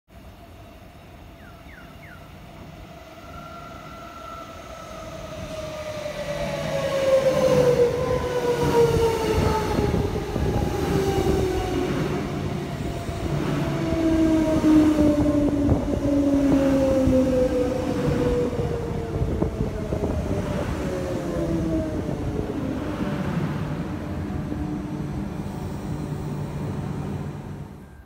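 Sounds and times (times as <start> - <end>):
train wheels rumbling on rails: 0.4 - 28.0
electric train motors whining: 24.0 - 28.0.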